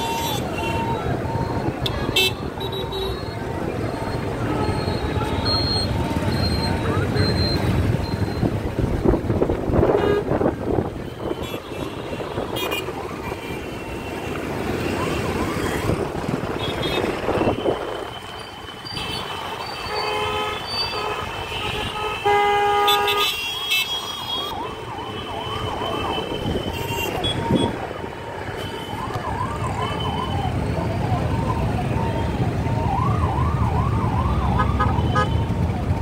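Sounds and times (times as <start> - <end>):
vehicle horns tooting: 1.8 - 3.4, 16.6 - 24.7, 25.9 - 27.8, 34.6 - 35.5.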